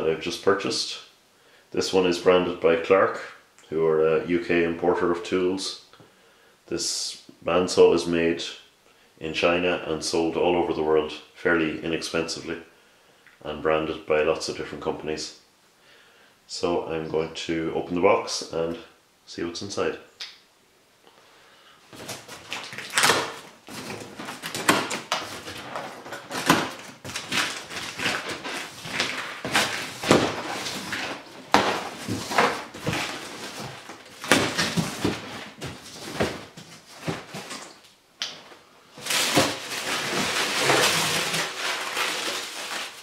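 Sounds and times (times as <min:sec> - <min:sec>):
cardboard and tape tearing: 0:21.9 - 0:37.8, 0:39.0 - 0:43.0
packing paper crumpling: 0:21.9 - 0:37.8, 0:39.0 - 0:43.0
plastic strapping cut: 0:22.1 - 0:34.9.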